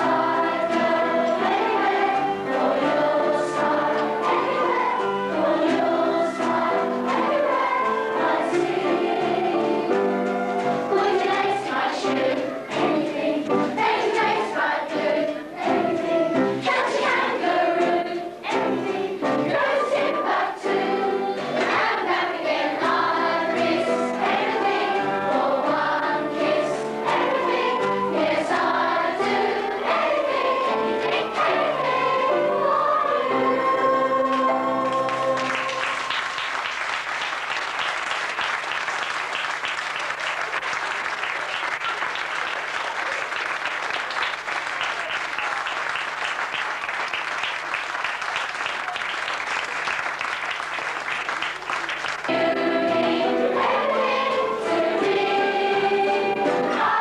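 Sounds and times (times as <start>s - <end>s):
children singing in chorus: 0.0s - 36.2s, 52.2s - 57.0s
audience applause: 34.3s - 52.6s.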